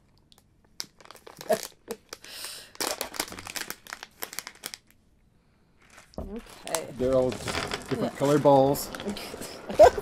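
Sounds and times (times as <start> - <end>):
plastic packet tearing: 0.8 - 4.9
plastic packet crinkling: 0.8 - 5.0, 5.8 - 9.4.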